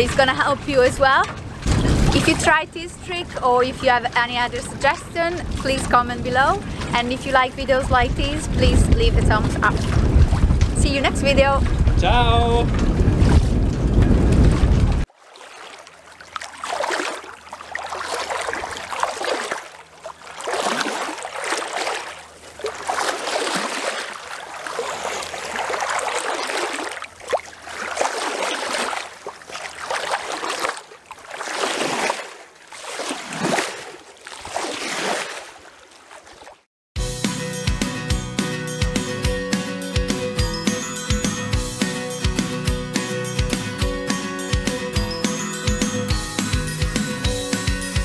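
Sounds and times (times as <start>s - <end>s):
music jingle: 37.0s - 48.0s.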